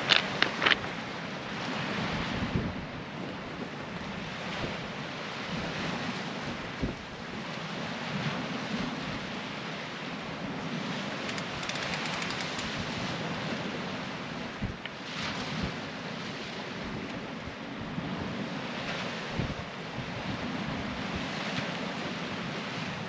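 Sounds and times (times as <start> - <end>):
wind buffeting microphone: 0.0 - 7.3
rapid faint clicks: 11.3 - 12.8.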